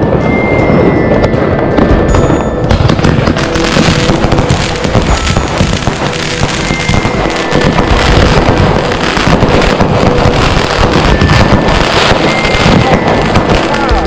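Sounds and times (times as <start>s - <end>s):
firework crackling pops: 0.0s - 14.0s.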